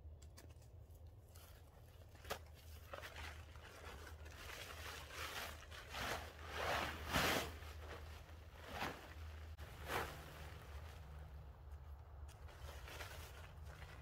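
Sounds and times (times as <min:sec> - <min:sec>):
plastic tarp crinkling and swishing: 0:02.2 - 0:11.6, 0:12.4 - 0:14.0.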